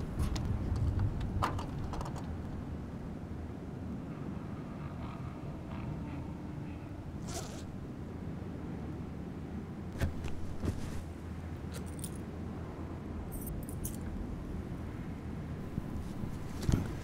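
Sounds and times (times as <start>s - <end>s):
steady low hum: 0.0s - 17.0s
metallic clinking and jingling: 13.3s - 14.1s.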